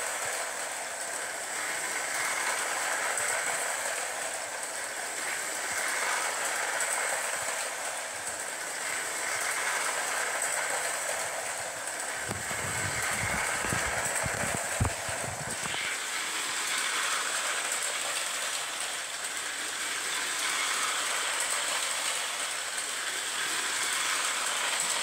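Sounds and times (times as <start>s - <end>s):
model train running on track: 0.0s - 25.0s.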